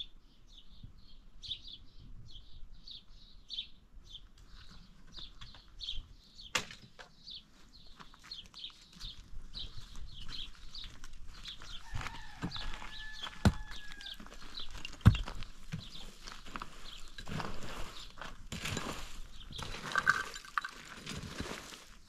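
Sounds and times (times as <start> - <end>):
pickaxe striking stony ground: 14.8 - 15.4.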